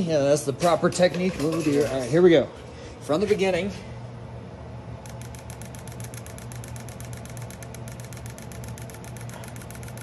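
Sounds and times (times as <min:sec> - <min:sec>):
steady low hum: 0:00.0 - 0:10.0
fuel injectors clicking: 0:05.0 - 0:10.0.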